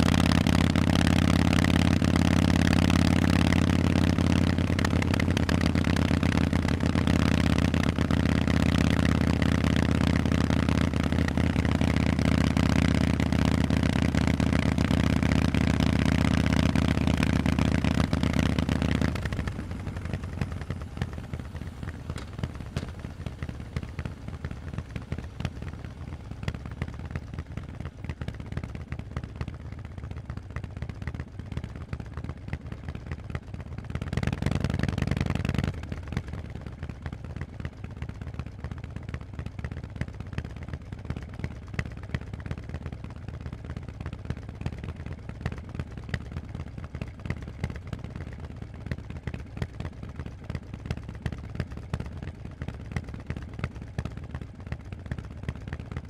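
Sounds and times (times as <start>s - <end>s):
motorcycle throttle: 0.0s - 29.0s
motorcycle engine running: 0.0s - 56.0s.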